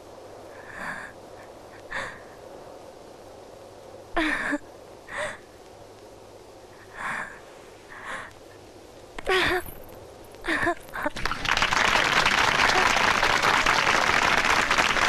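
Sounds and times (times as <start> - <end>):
person's breathy vocal sounds: 0.5 - 2.4, 6.8 - 8.4.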